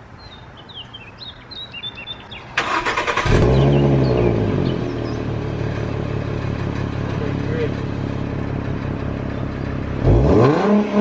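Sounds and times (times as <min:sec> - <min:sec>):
birds chirping: 0:00.0 - 0:10.5
car engine revving and idling: 0:02.6 - 0:11.0.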